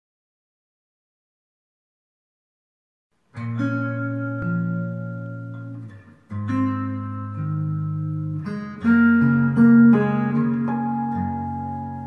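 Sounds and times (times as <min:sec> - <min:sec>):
fingerpicked acoustic guitar: 0:03.3 - 0:12.0.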